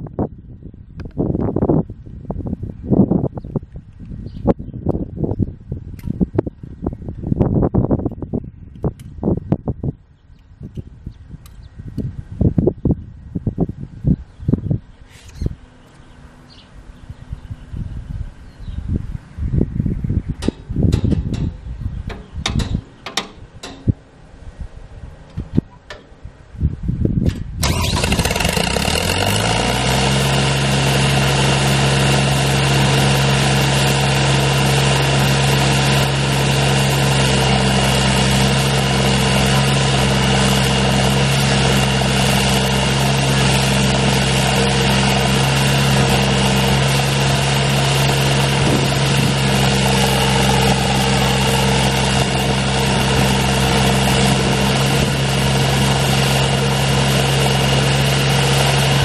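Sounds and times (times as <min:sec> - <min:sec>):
engine starting and running: 0:27.2 - 0:59.0.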